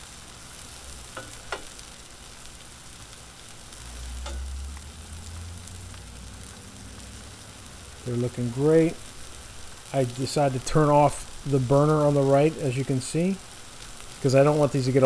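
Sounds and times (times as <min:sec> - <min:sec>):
food sizzling on griddle: 0:00.0 - 0:15.0.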